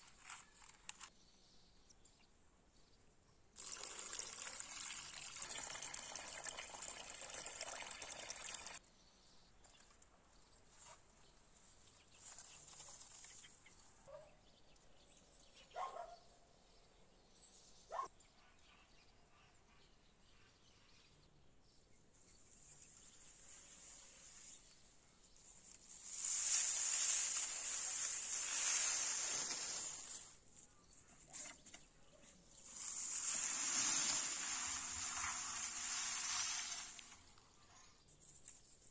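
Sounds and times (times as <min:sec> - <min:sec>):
water pouring: 0:03.6 - 0:08.8, 0:26.0 - 0:30.2, 0:32.5 - 0:37.4.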